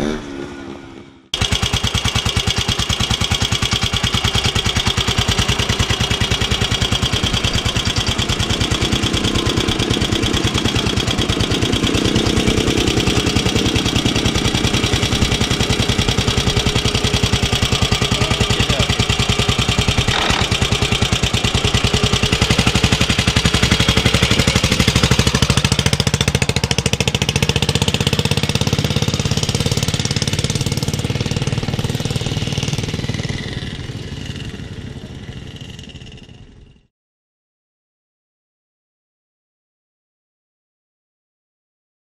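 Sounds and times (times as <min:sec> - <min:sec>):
motorcycle engine running: 0:00.0 - 0:36.9
engine knock: 0:01.4 - 0:36.9.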